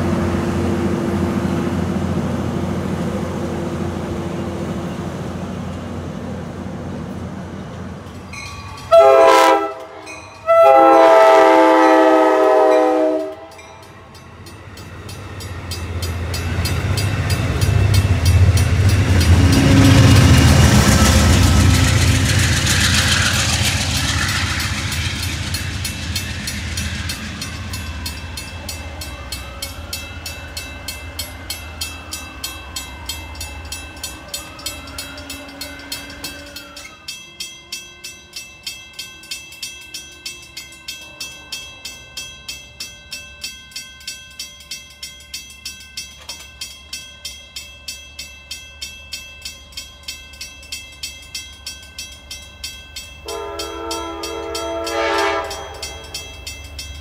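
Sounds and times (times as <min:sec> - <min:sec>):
diesel locomotive rumbling: 0:00.0 - 0:37.5, 0:49.0 - 0:57.0
railroad crossing bell dinging: 0:07.1 - 0:57.0.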